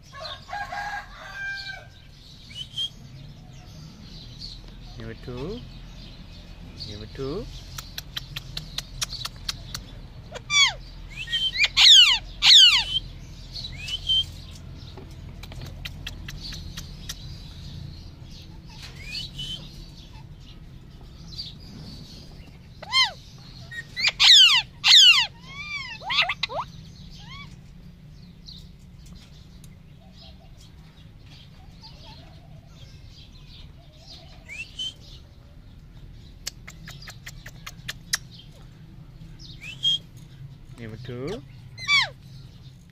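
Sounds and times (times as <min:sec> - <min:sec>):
parakeet screeching: 0:10.3 - 0:13.0, 0:22.8 - 0:27.5, 0:41.8 - 0:42.2.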